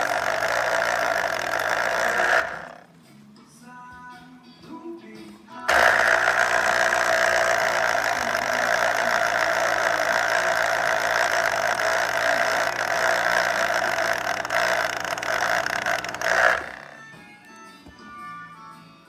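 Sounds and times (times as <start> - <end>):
electric citrus juicer running: 0.0 - 2.9, 5.7 - 17.6.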